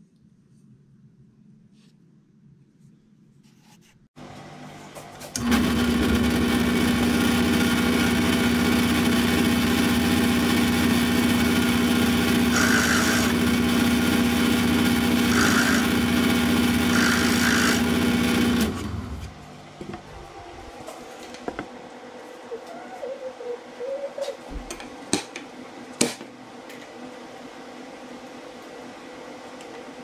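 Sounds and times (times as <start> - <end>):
drill press motor humming: 5.3 - 20.8
motor winding down: 5.4 - 19.4
drill bit cutting wood: 11.7 - 18.7.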